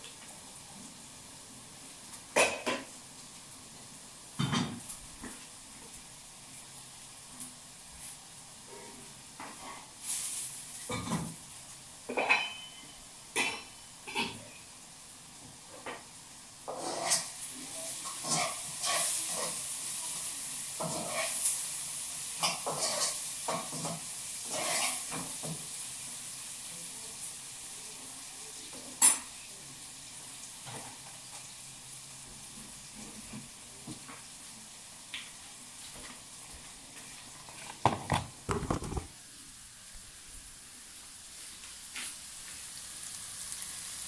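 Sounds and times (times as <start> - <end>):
food sizzling in frying pan: 0.0 - 44.0
utensil clinking and scraping pan: 12.1 - 14.4, 16.7 - 17.4, 18.0 - 19.6, 20.8 - 21.5, 22.4 - 25.3.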